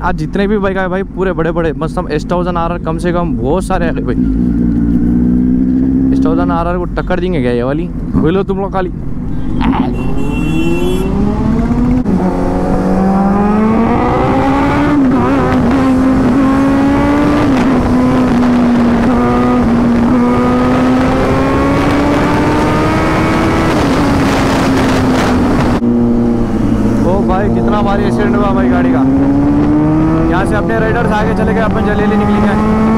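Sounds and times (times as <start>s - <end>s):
motorcycle engine accelerating: 3.4s - 6.5s, 9.2s - 32.9s
wind rush: 11.1s - 32.9s.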